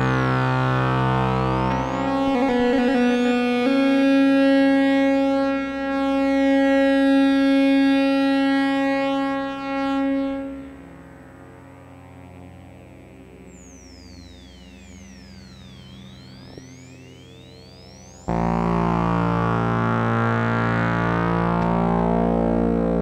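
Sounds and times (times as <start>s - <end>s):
synthesizer electronic tones: 0.0s - 9.0s, 12.9s - 23.0s.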